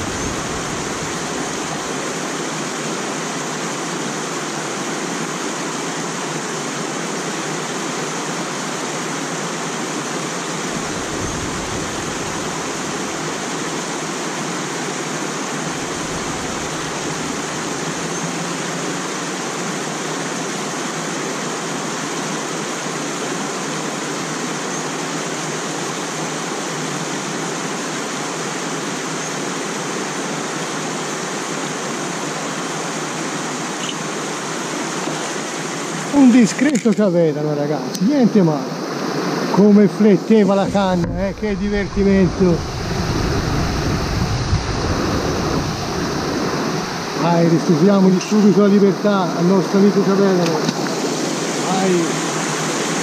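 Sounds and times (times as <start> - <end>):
stream running over stones: 0.0 - 53.0
low rumble: 15.7 - 18.1, 40.6 - 47.2.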